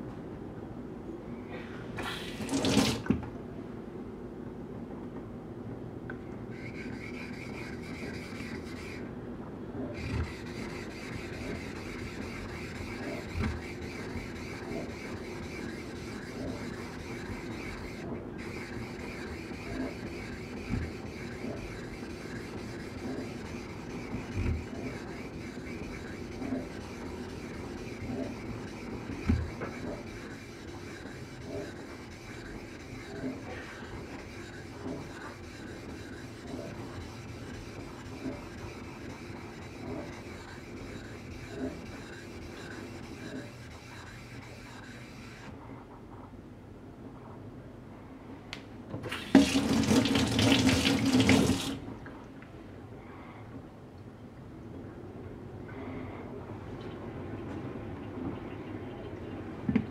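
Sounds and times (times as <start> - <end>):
blade rubbing on a whetstone: 6.5 - 9.1, 10.0 - 45.5.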